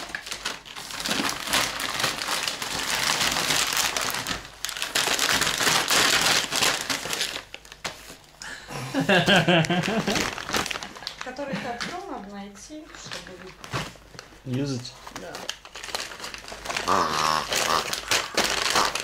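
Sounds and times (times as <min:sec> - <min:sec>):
plastic pouches crinkling: 0:00.0 - 0:08.3, 0:09.2 - 0:19.0.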